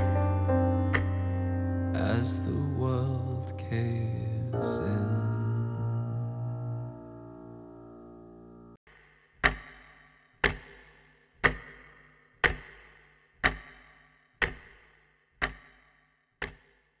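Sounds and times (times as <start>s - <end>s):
held piano chord: 0.0s - 8.8s
clock ticking: 8.9s - 17.0s.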